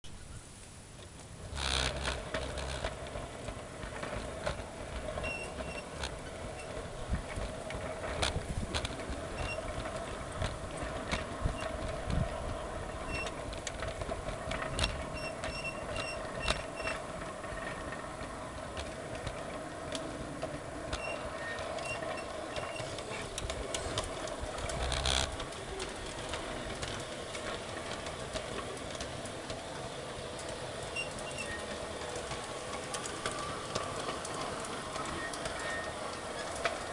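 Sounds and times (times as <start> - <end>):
wheels clicking over rail joints: 0.6 - 36.9
electric motor hum: 22.0 - 26.8.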